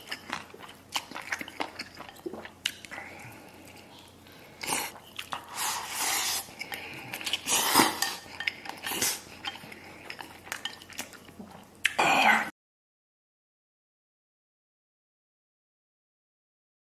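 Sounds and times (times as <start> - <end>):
noodles being slurped: 4.5 - 11.2.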